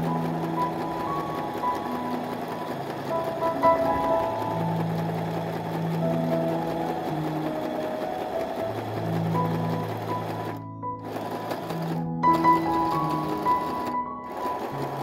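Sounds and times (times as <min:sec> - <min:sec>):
electric sewing machine running: 0:00.0 - 0:15.0.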